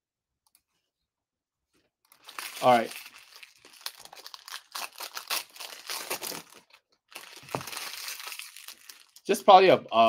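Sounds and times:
foil wrapper crinkling and tearing: 0:02.1 - 0:09.4.

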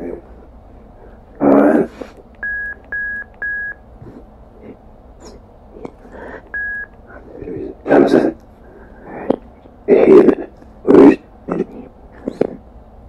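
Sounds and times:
voice-like fragment: 0:09.9 - 0:12.6.

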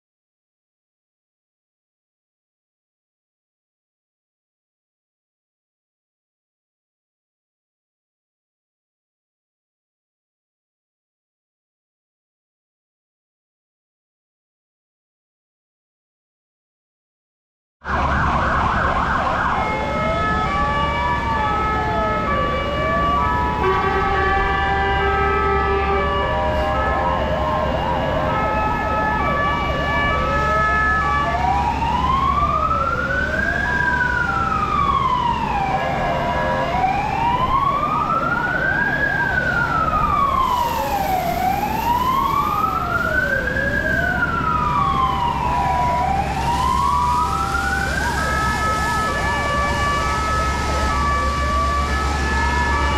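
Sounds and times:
alternating tone sirens: 0:17.8 - 0:52.9
wailing siren: 0:17.8 - 0:52.9.

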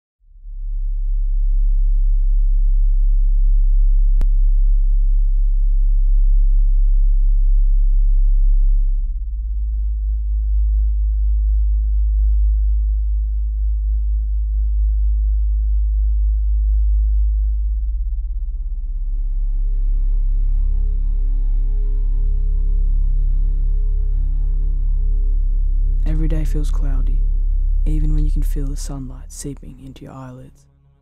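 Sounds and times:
deep electronic bass drone: 0:00.3 - 0:31.0.

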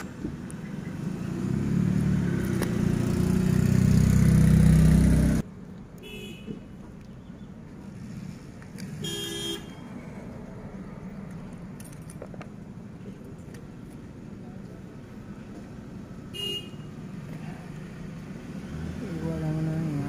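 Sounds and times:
street traffic hum: 0:00.0 - 0:20.0
car horn toots: 0:09.0 - 0:09.8, 0:16.3 - 0:16.9.

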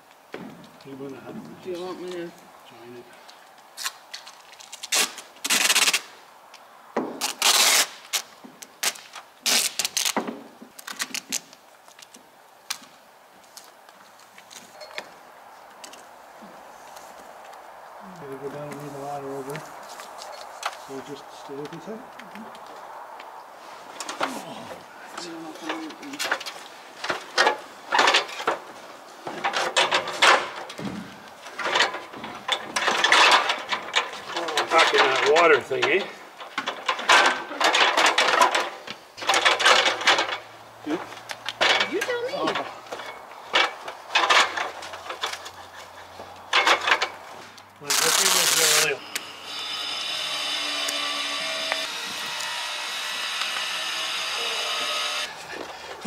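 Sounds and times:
tape pulled off roll: 0:03.8 - 0:06.2, 0:07.1 - 0:14.7.

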